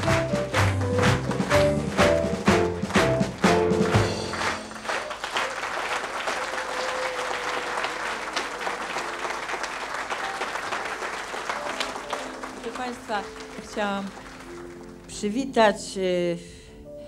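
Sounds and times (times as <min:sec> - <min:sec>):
lively music with accented beats: 0:00.0 - 0:05.2
audience applause: 0:00.0 - 0:15.1.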